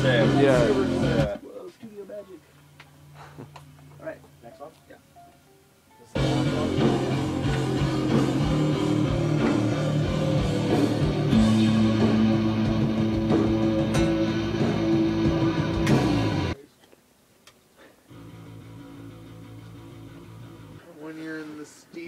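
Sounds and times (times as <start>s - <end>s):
rock music with guitars: 0.0s - 1.4s, 6.2s - 16.6s, 18.1s - 20.8s.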